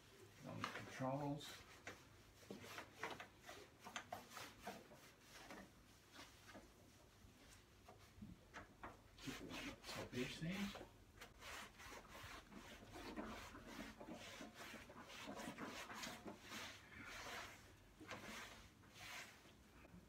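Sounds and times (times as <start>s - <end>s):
rag scrubbing steel panel: 9.2s - 19.5s.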